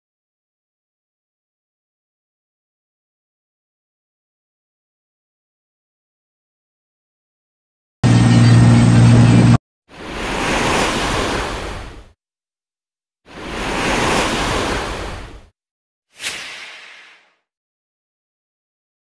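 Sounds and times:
low drone: 0:08.0 - 0:09.6.

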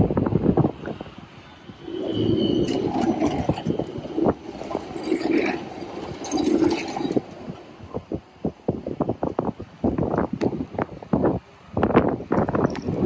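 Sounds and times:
tram wheels grinding: 0:00.0 - 0:10.9
tram rumbling on rails: 0:00.0 - 0:13.0.

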